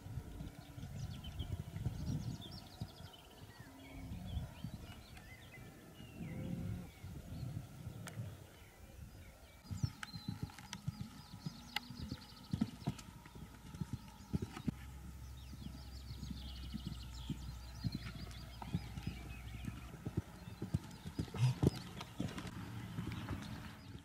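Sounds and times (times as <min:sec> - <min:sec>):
muffled hoofbeats on sand: 0:09.6 - 0:24.0.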